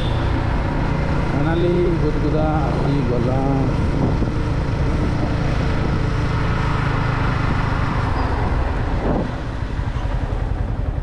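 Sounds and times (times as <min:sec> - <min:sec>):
motorcycle engine running: 0:00.0 - 0:11.0
wind rush over microphone: 0:03.5 - 0:09.8.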